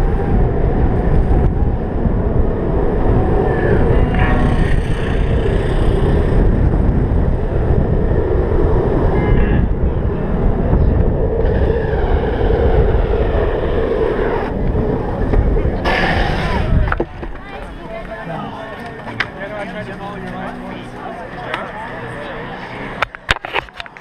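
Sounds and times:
wind rush on microphone: 0.0s - 18.1s
longboard wheels rolling on asphalt: 0.0s - 24.0s.

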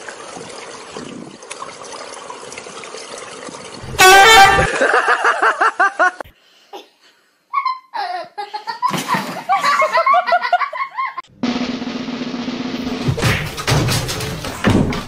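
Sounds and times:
person laughing hard: 4.5s - 6.2s.

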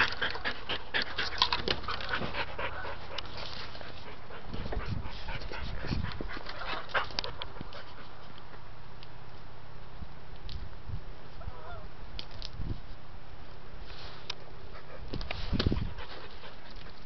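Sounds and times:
dog panting: 0.0s - 8.3s, 14.7s - 17.0s.

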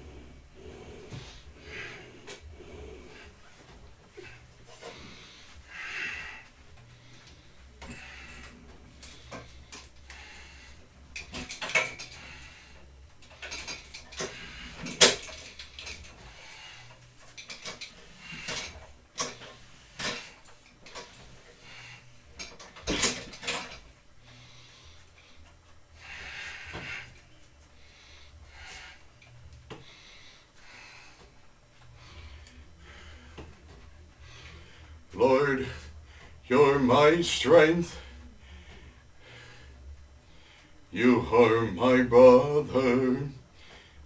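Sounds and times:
heavy breathing: 0.0s - 41.6s, 42.4s - 44.0s.

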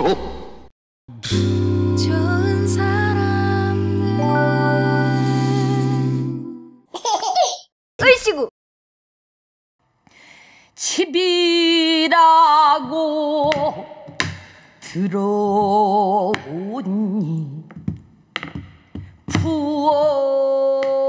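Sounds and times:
woman singing with vibrato: 1.2s - 6.8s, 10.8s - 14.2s, 14.8s - 17.8s, 19.3s - 21.0s.

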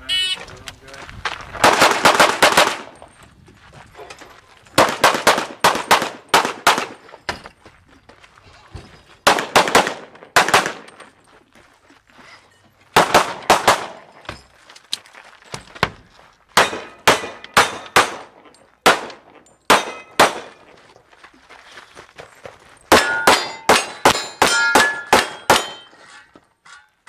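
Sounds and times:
handgun shots: 9.3s - 11.0s, 16.6s - 18.3s, 18.9s - 20.6s, 22.9s - 25.8s.

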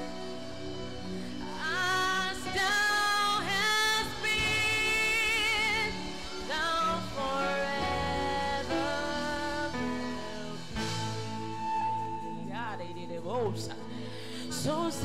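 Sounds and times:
sustained chord accompaniment: 0.0s - 15.0s
woman singing with vibrato: 1.5s - 15.0s.

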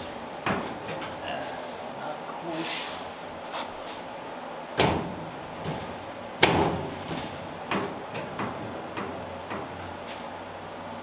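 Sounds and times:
metal hood thumping shut: 4.8s - 9.7s.

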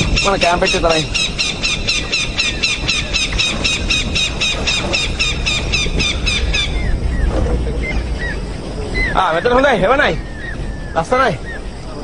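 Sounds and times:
bird high squeaky calls: 0.0s - 12.0s
steady low rumble: 0.0s - 12.0s.

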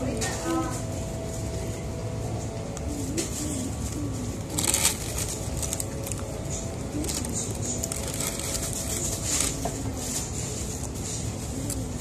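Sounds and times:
restaurant dining room hum: 0.0s - 12.0s
paper wrapper crinkling: 3.5s - 10.9s.

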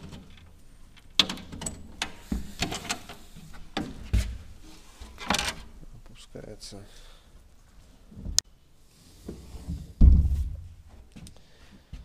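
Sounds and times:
dull thumps: 10.0s - 10.9s.

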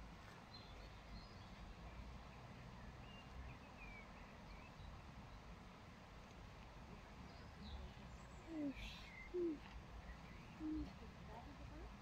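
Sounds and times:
faint high bird chirps: 7.3s - 11.0s.

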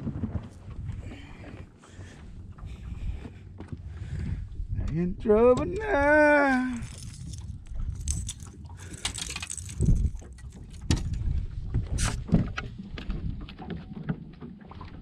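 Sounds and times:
footsteps on boat deck: 0.0s - 5.0s
wind and water against hull: 0.0s - 15.0s.

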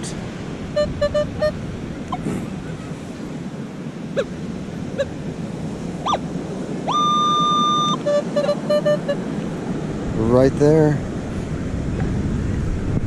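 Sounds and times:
surf and wind hiss: 0.0s - 13.0s
metal detector beeping: 0.7s - 2.2s, 6.0s - 9.3s
metal detector chirps: 0.7s - 2.2s, 6.0s - 6.2s, 6.8s - 9.3s.

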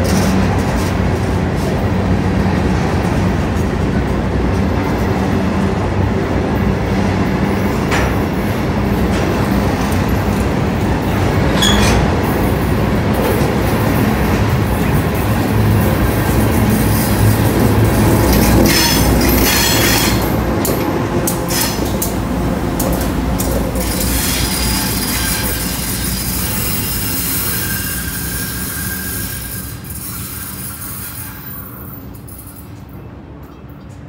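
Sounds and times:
train wheels clattering: 0.0s - 34.0s
wheel squeal: 11.6s - 12.0s, 23.8s - 32.6s.

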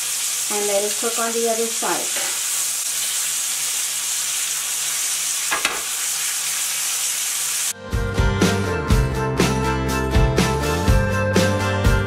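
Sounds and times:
chicken frying in a skillet: 0.0s - 7.8s
music: 7.7s - 12.0s.

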